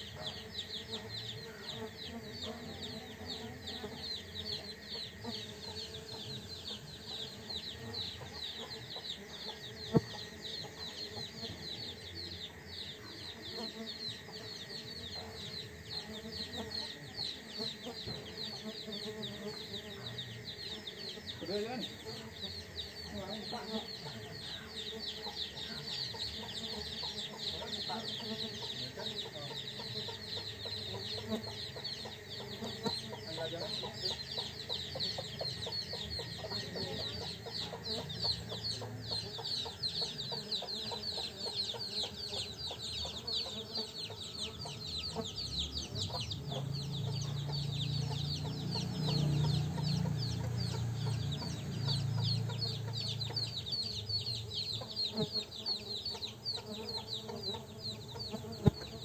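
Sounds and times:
bees buzzing: 0.0 - 59.0
insects chirring: 0.0 - 59.0
chickens clucking: 17.7 - 59.0.

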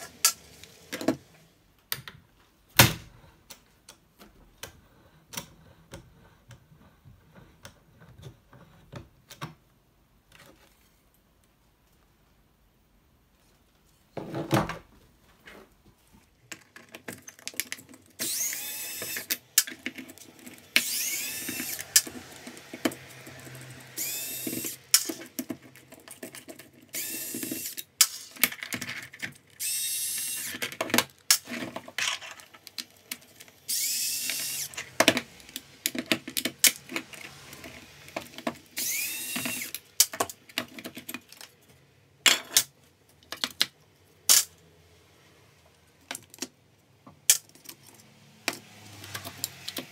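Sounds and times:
screws and parts clattering: 16.5 - 41.6
electric screwdriver whining: 18.2 - 19.5, 20.6 - 25.2, 26.9 - 27.9, 29.6 - 30.6, 33.6 - 35.0, 37.5 - 39.8.

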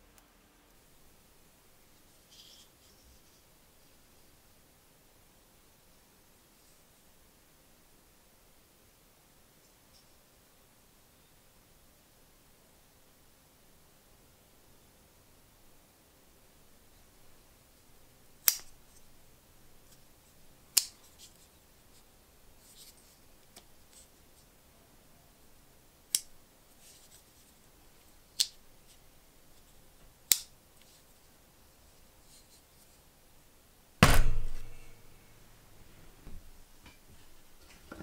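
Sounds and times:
knife thumping on wooden bench: 34.0 - 34.8.

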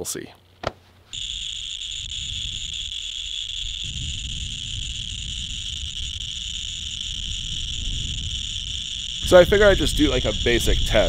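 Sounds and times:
insects trilling: 0.0 - 11.0
low rumble: 3.6 - 11.0.

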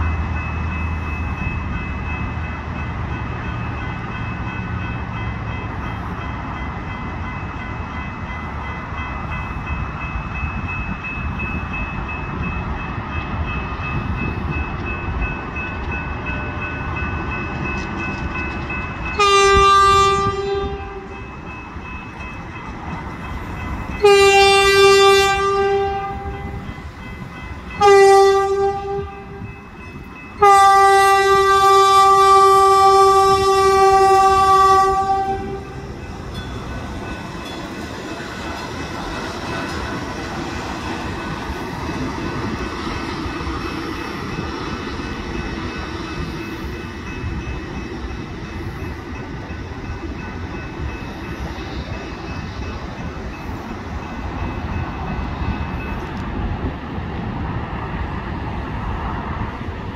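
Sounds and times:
train horn blasts: 19.1 - 21.2, 24.0 - 26.6, 27.8 - 29.5, 30.4 - 35.9.

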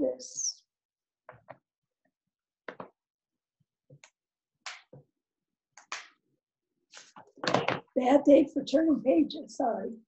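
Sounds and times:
book pages rustling and turning: 6.9 - 7.8.

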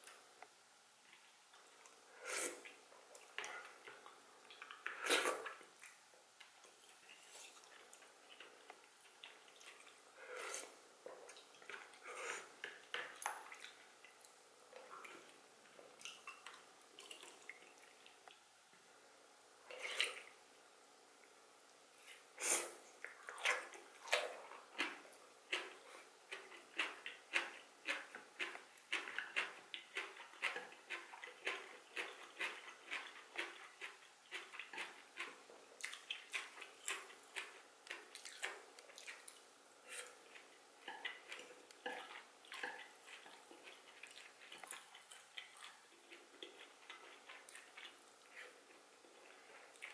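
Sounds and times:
slurping: 9.3 - 12.8
wet chewing: 23.0 - 49.9.

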